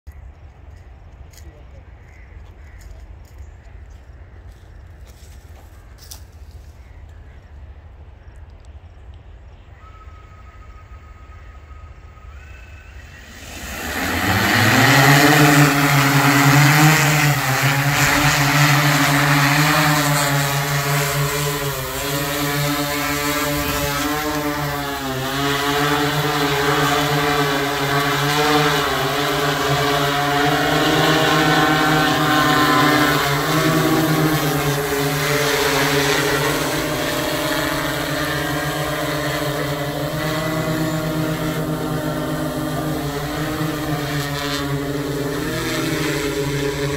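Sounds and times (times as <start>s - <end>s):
drone motors and propellers: 2.1s - 46.9s
faint steady tone: 9.0s - 13.3s.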